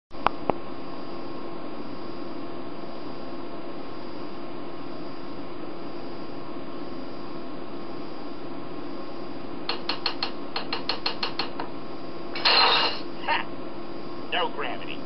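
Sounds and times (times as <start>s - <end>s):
steady hum: 0.1s - 15.0s
cartoon soundtrack on small speaker: 12.8s - 13.5s, 14.3s - 15.0s.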